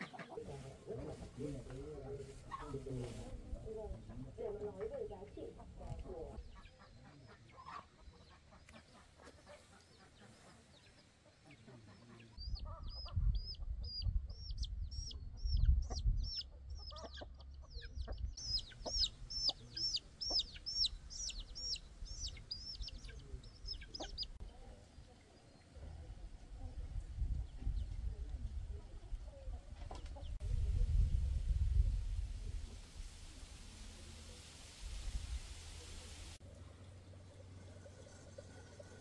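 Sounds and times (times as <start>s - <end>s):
chickens peeping: 4.0s - 24.5s
low rumbling noise: 30.4s - 37.7s.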